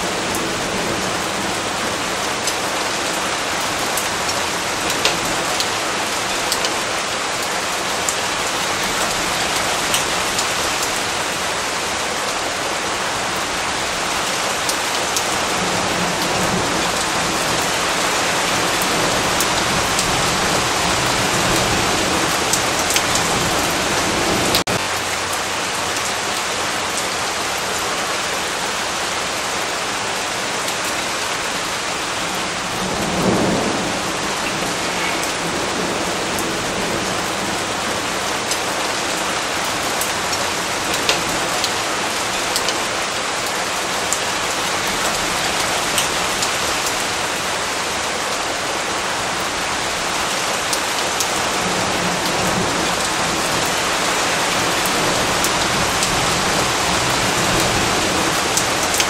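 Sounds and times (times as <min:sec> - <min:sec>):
steady rain falling: 0:00.0 - 0:59.0
rain drop ticks: 0:03.9 - 0:05.8, 0:06.4 - 0:06.9, 0:08.9 - 0:11.0, 0:22.3 - 0:23.3, 0:40.0 - 0:41.8, 0:42.5 - 0:42.9, 0:57.5 - 0:59.0
low rumble of thunder: 0:32.6 - 0:37.8.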